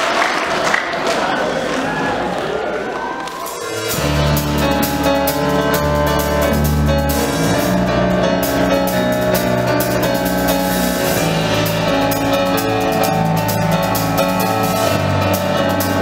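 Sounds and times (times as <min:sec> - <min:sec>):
live band playing: 0:03.2 - 0:16.0.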